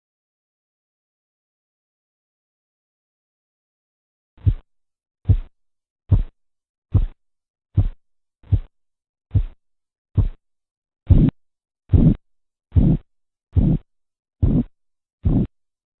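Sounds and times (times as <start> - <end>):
pulse-beat thumps: 4.4 - 4.6, 5.3 - 5.5, 6.1 - 6.3, 6.9 - 7.2, 7.8 - 8.7, 9.3 - 9.6, 10.2 - 10.4, 11.1 - 13.0, 13.6 - 13.8, 14.4 - 15.5.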